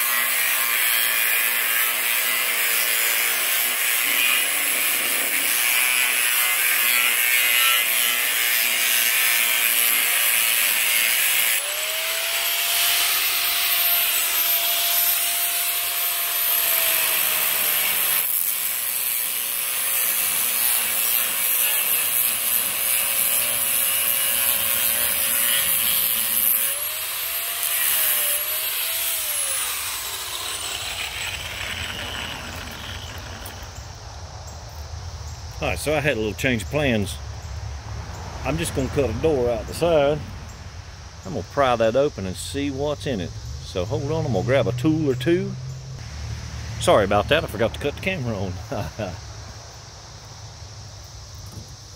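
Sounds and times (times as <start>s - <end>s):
angle grinder cutting steel: 0.0s - 33.8s
grinder motor whine: 1.6s - 33.8s.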